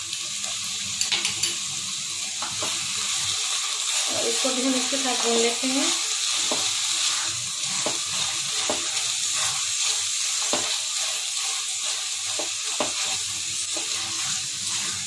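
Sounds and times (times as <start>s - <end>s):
food sizzling in a pan: 0.0s - 15.0s
spatula scraping and tapping pan: 0.4s - 1.7s, 2.4s - 2.8s, 6.4s - 15.0s.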